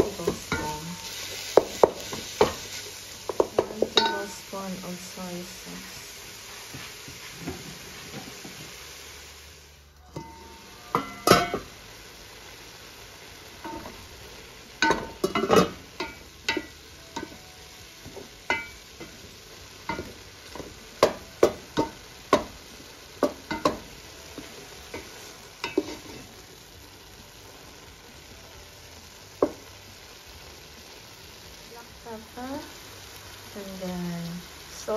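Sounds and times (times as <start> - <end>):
meat and onion sizzling in a pot: 0.0 - 34.9
wooden spoon scraping a pot: 25.0 - 26.3.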